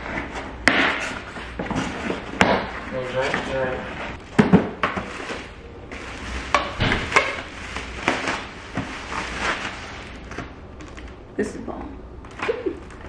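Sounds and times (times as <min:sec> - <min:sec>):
bubble wrap crinkling: 0:05.0 - 0:11.2.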